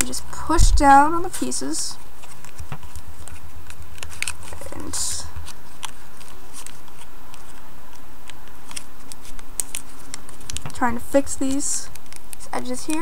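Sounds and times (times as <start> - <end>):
steady background hiss: 0.0 - 13.0
paper crinkling and creasing: 1.2 - 10.8
paper rustle: 2.1 - 10.8.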